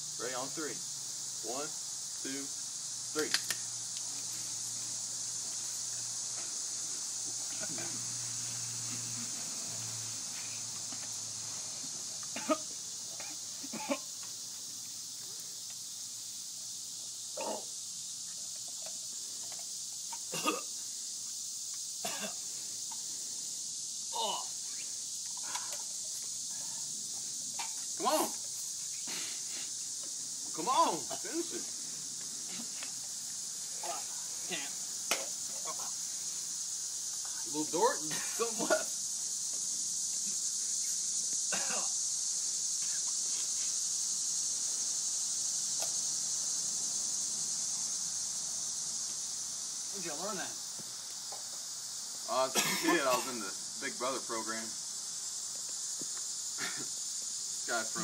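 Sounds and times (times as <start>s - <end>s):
insects chirring: 0.0s - 58.0s
steady background hiss: 0.0s - 58.0s
person coughing: 12.4s - 12.6s, 20.3s - 20.7s, 22.0s - 22.4s, 41.5s - 41.9s, 52.6s - 53.4s, 56.6s - 56.9s.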